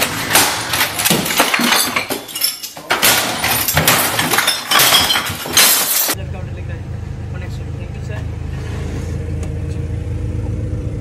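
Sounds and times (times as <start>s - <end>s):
objects crashing and clattering: 0.0s - 6.2s
glassy clinks: 1.1s - 6.2s.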